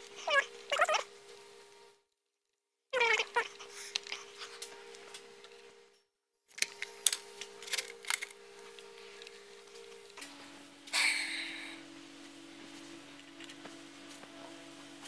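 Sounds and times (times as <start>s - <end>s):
dog whining: 0.2s - 1.1s, 3.0s - 4.6s
steady hum: 3.2s - 15.0s.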